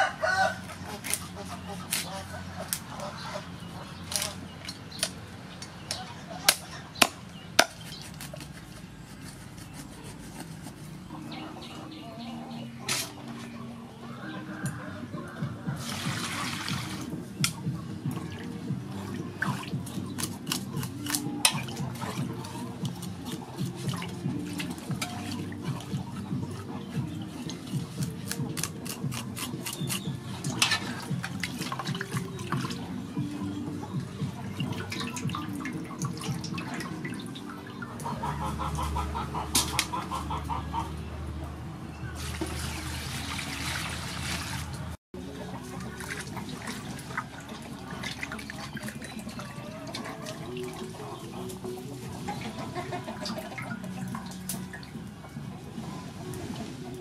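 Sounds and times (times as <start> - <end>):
water splashing in metal basin: 14.5 - 40.8, 42.1 - 57.0
water dripping: 14.6 - 38.7, 45.6 - 55.2.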